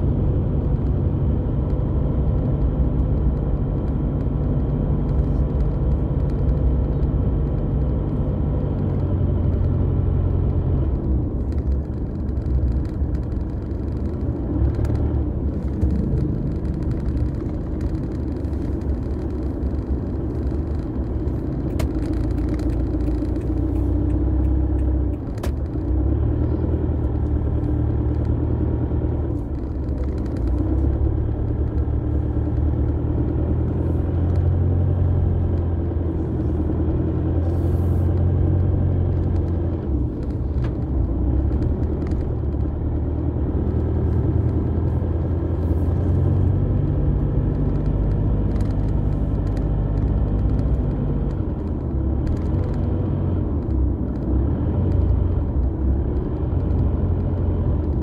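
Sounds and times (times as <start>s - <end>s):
car engine and tyre rumble: 0.0s - 58.0s
sharp clicks: 10.4s - 26.0s.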